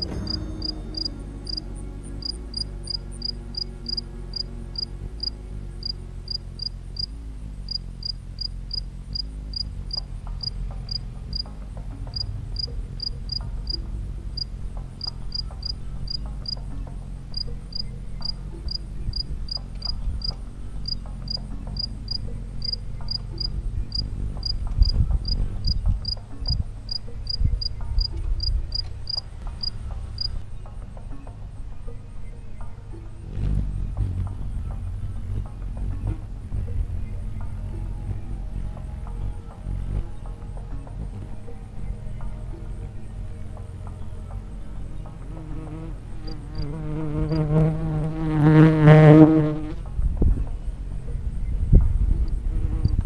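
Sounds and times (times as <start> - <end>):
cricket chirping: 0.0 - 30.4, 41.1 - 47.6
low rumble: 0.0 - 30.5, 33.1 - 45.4.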